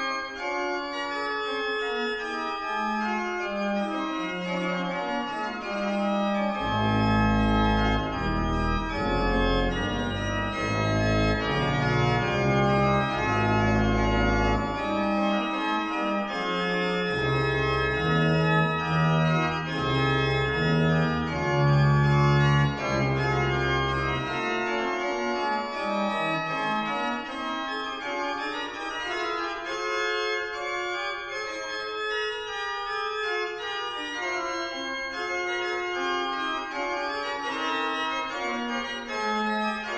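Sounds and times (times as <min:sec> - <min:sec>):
pipe organ chorale: 0:00.0 - 0:39.9
deep organ pedal bass: 0:03.4 - 0:27.4.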